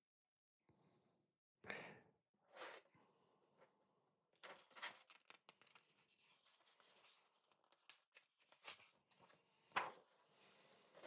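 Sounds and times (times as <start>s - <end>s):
book pages rustling and turning: 4.4s - 10.3s.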